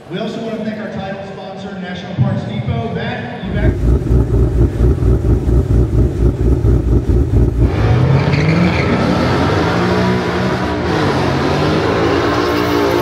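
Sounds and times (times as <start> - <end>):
car engine revving: 3.4 - 13.0.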